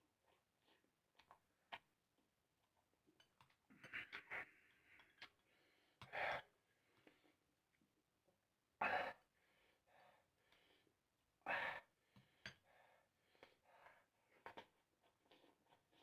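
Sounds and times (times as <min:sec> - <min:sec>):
breathing: 0:04.4 - 0:07.4, 0:08.8 - 0:14.4
soft chewing: 0:14.3 - 0:16.0.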